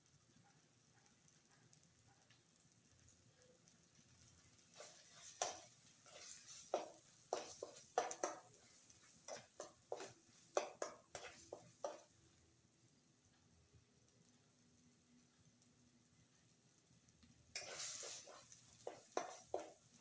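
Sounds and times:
paste frying in oil: 0:00.0 - 0:20.0
metal spoon scraping a metal pan: 0:04.8 - 0:12.1, 0:17.6 - 0:19.8.

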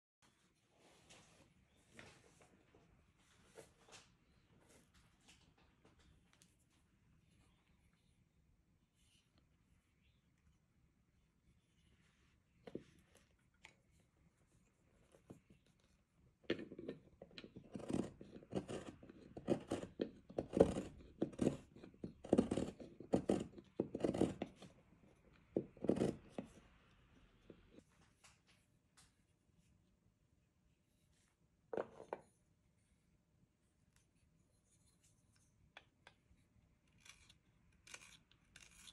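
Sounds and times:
chisel scraping wood: 0:16.5 - 0:24.8, 0:25.6 - 0:26.6.

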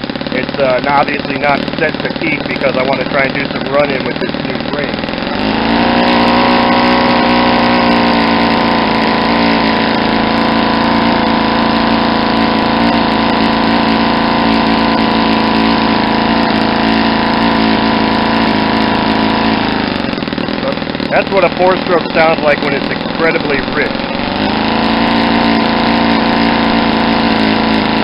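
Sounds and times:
model glow engine running: 0:00.0 - 0:28.0.

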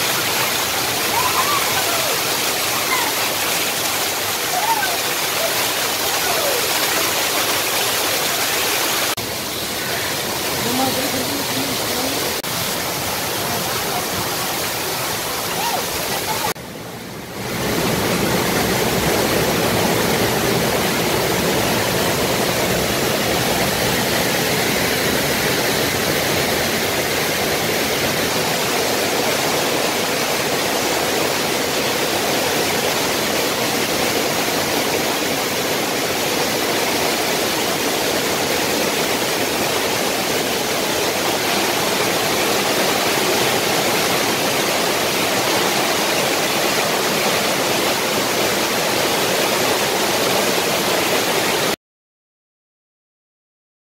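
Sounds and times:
floodwater rushing down steps: 0:00.0 - 0:16.6, 0:17.2 - 0:51.8.

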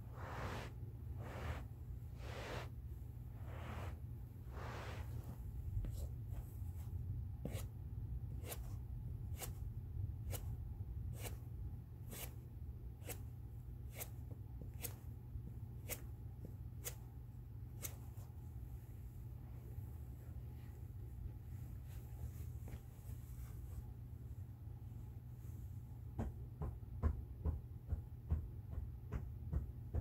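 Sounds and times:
steady low hum: 0:00.0 - 0:26.2.

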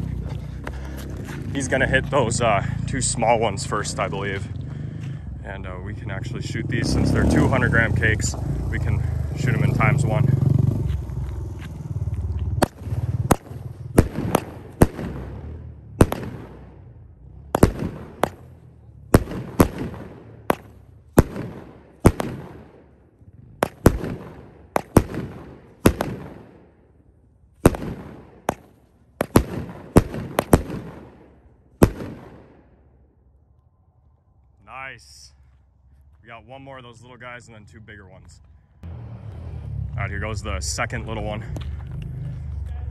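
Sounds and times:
firework bangs with echo: 0:12.6 - 0:23.0, 0:23.6 - 0:26.8, 0:27.6 - 0:32.7.

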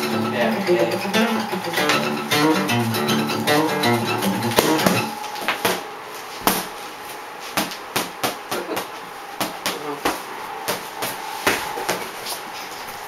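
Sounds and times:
acoustic guitar picked notes: 0:00.0 - 0:06.1
sharp knocks: 0:03.4 - 0:06.8.

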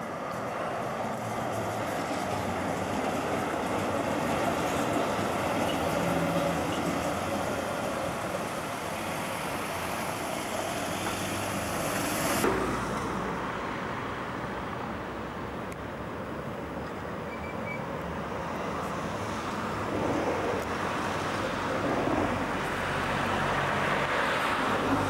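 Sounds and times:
tram rolling over rails: 0:00.0 - 0:25.0
cars driving past: 0:04.6 - 0:15.8, 0:17.0 - 0:25.0
dull street hum: 0:11.1 - 0:25.0.

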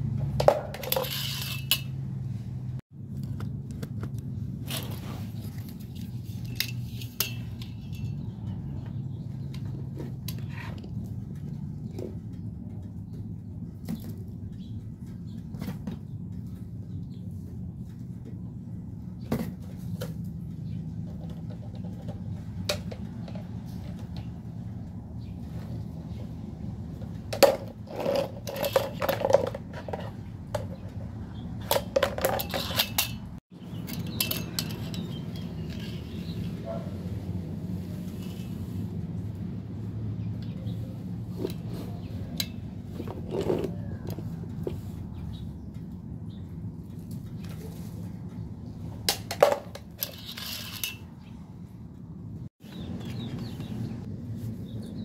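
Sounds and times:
plastic toy clattering and knocking: 0:00.2 - 0:01.9, 0:21.0 - 0:24.4, 0:27.0 - 0:36.1, 0:49.0 - 0:51.1
rustling scrape: 0:00.7 - 0:02.6, 0:04.5 - 0:08.1, 0:32.0 - 0:39.3, 0:40.6 - 0:45.2, 0:47.4 - 0:48.3, 0:49.8 - 0:51.3.

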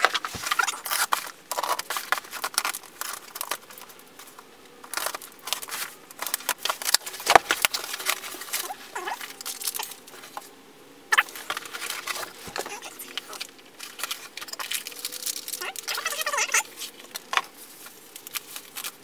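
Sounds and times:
packing material crinkling: 0:00.0 - 0:10.5, 0:11.1 - 0:19.0
packing tape tearing: 0:00.0 - 0:10.5, 0:11.1 - 0:19.0.

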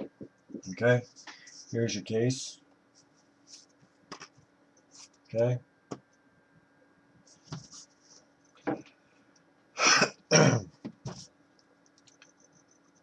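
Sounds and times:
man clearing his throat: 0:09.8 - 0:10.7.

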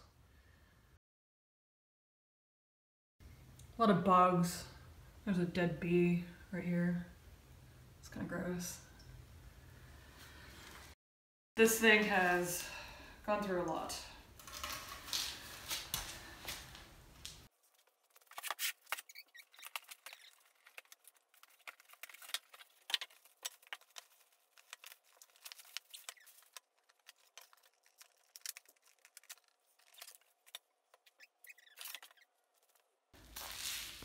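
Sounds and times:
plastic packaging crinkling: 0:17.6 - 0:34.0.

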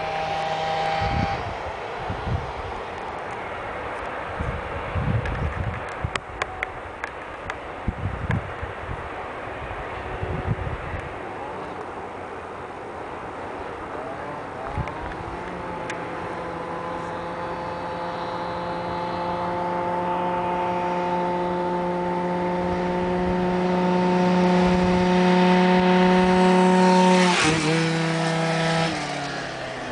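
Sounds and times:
scooter engine revving high: 0:00.0 - 0:01.6, 0:14.2 - 0:29.9.

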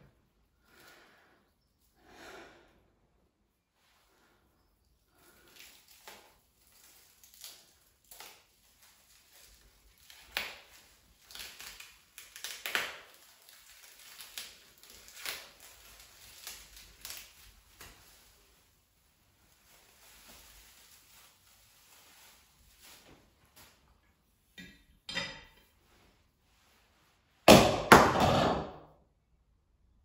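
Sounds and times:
cling film crinkling and crackling: 0:05.4 - 0:24.0.

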